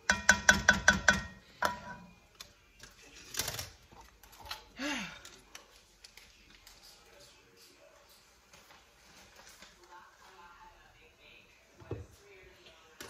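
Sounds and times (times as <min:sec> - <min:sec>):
spoon knocking metal pot: 0:00.0 - 0:02.1.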